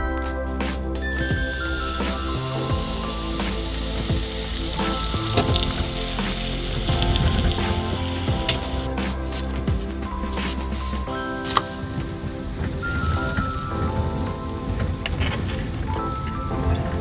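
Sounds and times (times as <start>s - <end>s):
batter sizzling in pan: 1.1s - 9.0s.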